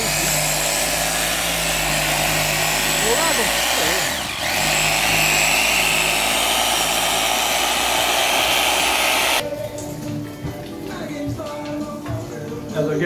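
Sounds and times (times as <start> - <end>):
electric saw whining: 0.0 - 9.4.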